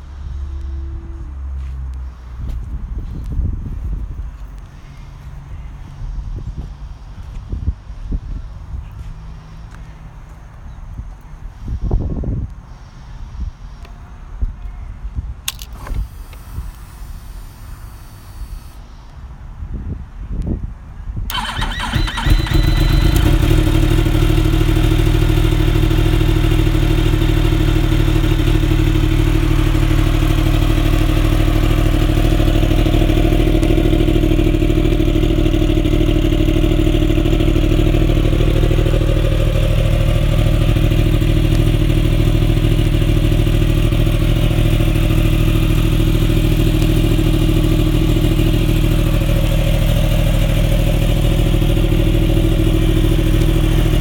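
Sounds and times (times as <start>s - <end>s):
motorcycle engine idling: 21.3s - 54.0s.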